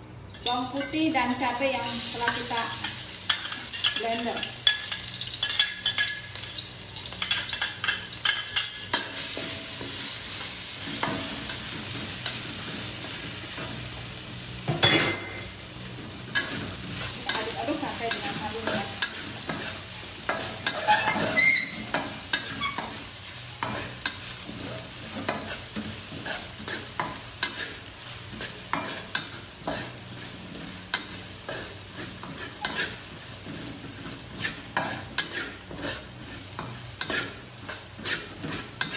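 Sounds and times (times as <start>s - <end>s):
chili paste sizzling in oil: 0.0s - 38.9s
metal spatula scraping wok: 16.2s - 38.9s.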